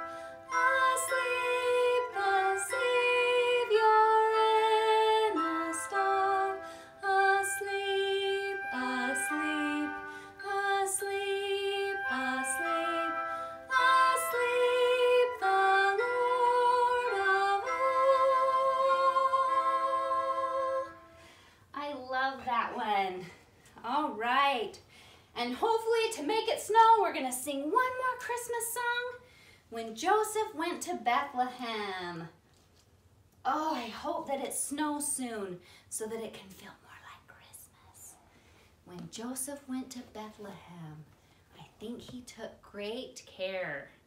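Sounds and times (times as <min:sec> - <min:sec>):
instrumental accompaniment: 0:00.0 - 0:21.5
woman singing a slow hymn: 0:00.5 - 0:21.0.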